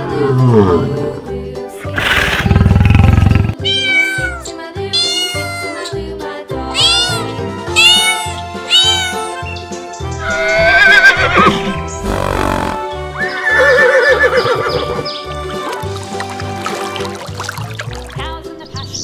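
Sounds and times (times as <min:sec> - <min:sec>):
kittens meowing: 0:03.6 - 0:05.9, 0:06.7 - 0:09.5
horse whinnying: 0:10.2 - 0:15.1.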